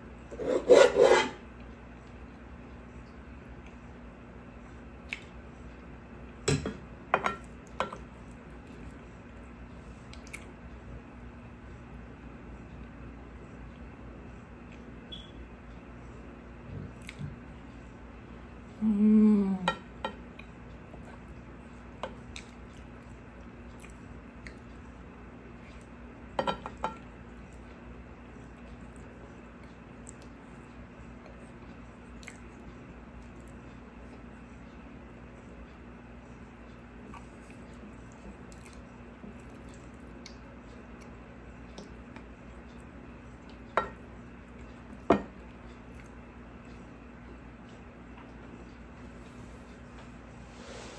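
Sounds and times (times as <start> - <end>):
woman humming mmm while chewing: 18.8 - 19.8.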